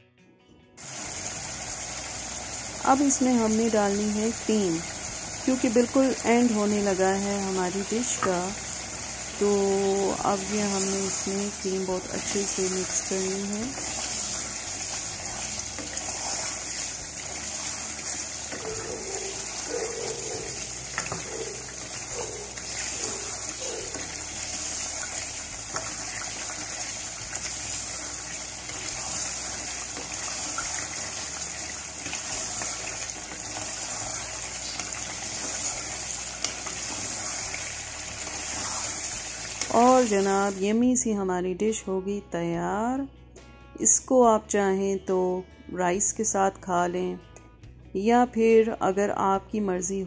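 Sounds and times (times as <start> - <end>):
gravy bubbling in a saucepan: 13.6 - 39.7
wooden spoon stirring: 13.7 - 39.7.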